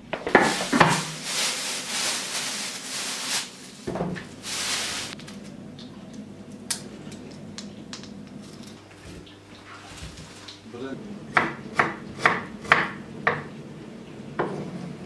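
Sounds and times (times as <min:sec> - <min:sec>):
plastic bag crinkling: 0:00.2 - 0:05.5.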